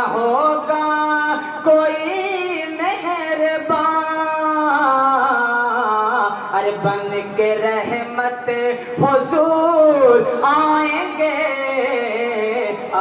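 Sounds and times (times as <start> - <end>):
man singing into a microphone: 0.0 - 13.0.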